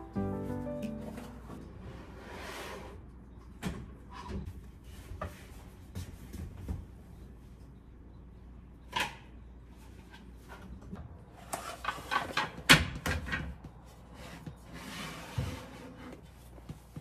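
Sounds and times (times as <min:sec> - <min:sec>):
plate sliding scrape: 0:02.1 - 0:03.0.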